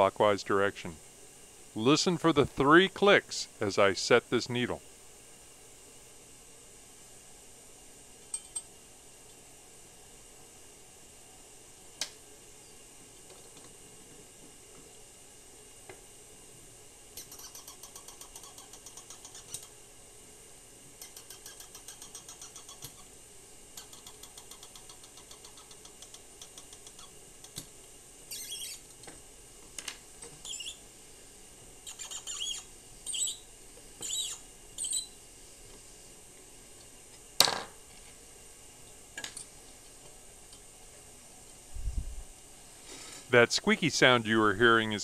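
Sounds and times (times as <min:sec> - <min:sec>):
short high squeaks: 0:28.3 - 0:28.8, 0:30.4 - 0:30.8, 0:31.8 - 0:33.4, 0:34.0 - 0:35.2.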